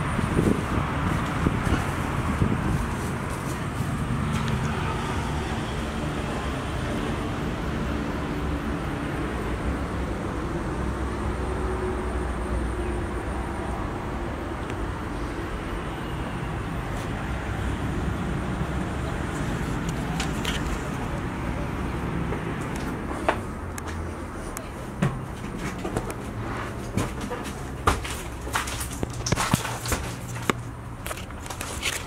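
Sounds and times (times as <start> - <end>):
distant road traffic rumble: 0.0 - 32.0.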